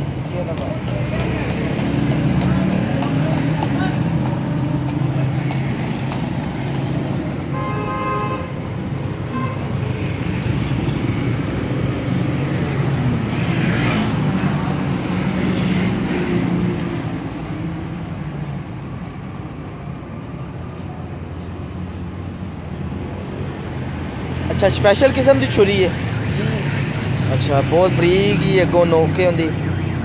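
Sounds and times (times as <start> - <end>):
vehicles going by: 0.0 - 30.0
car horn toot: 7.5 - 8.6, 9.3 - 9.7.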